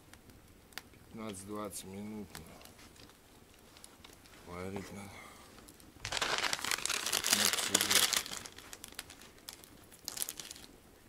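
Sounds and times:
packaging crinkling and rustling: 0:06.0 - 0:10.7.

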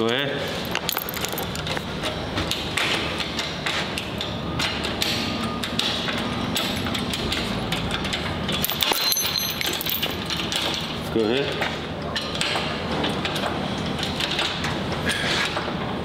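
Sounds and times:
metallic chain knocks and clinks: 0:00.6 - 0:01.8, 0:08.6 - 0:11.0.

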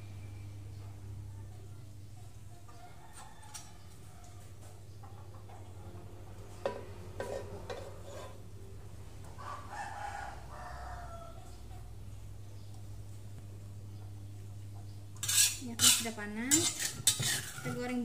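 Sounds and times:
rooster crowing: 0:02.7 - 0:04.6, 0:09.3 - 0:11.5.

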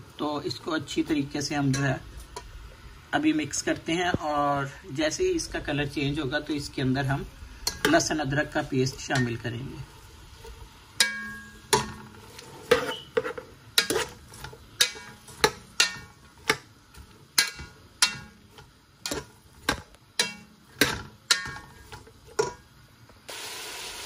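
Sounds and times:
frying sizzle: 0:00.0 - 0:24.0
metal spoon scraping a pot: 0:07.6 - 0:09.6, 0:10.3 - 0:22.6.

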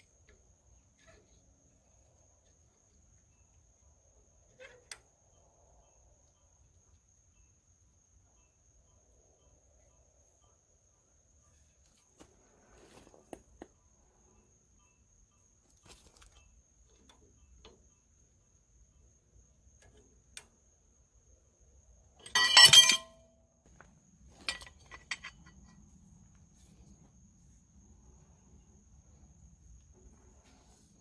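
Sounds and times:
insect trill: 0:00.0 - 0:11.7, 0:13.8 - 0:30.3
metal tool clattering on hub: 0:22.2 - 0:23.2, 0:24.3 - 0:25.7.

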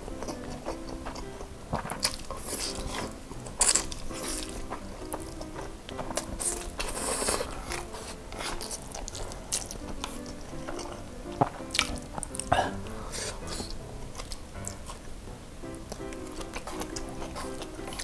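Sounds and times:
chewing with wet mouth clicks: 0:00.1 - 0:18.0
noodle slurping: 0:00.3 - 0:11.1, 0:11.8 - 0:15.0.

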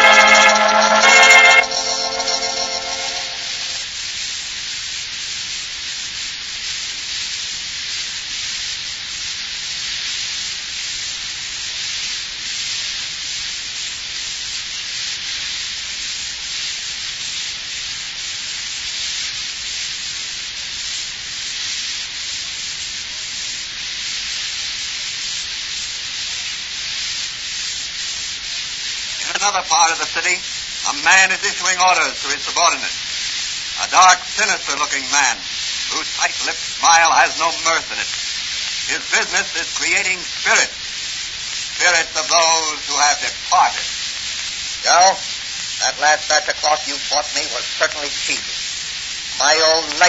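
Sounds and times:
sustained organ chord: 0:00.0 - 0:03.8
record surface hiss and crackle: 0:00.0 - 0:50.0.

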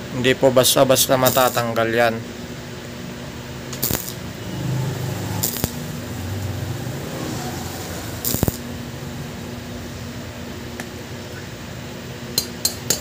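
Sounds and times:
welding arc crackling: 0:01.2 - 0:01.7, 0:03.7 - 0:10.5
low hum: 0:03.7 - 0:12.0.

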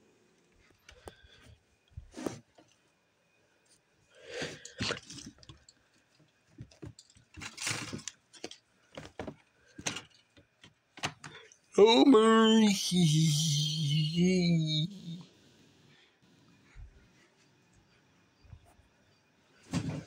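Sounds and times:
rustles and soft knocks of handling: 0:05.0 - 0:11.3.

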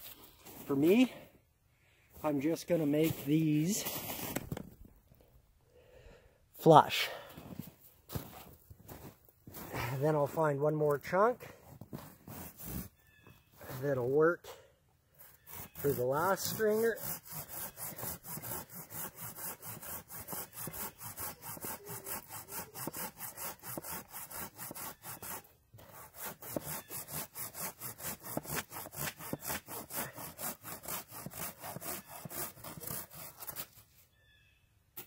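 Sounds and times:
hand saw cutting wood: 0:12.2 - 0:12.9, 0:15.2 - 0:33.8.

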